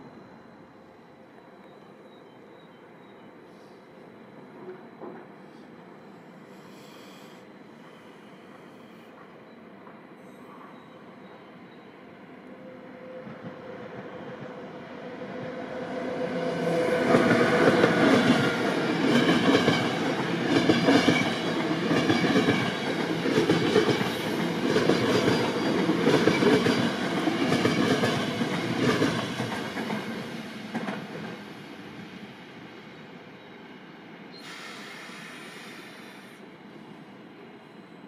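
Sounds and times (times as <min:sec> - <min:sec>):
short hiss: 0:34.4 - 0:36.4.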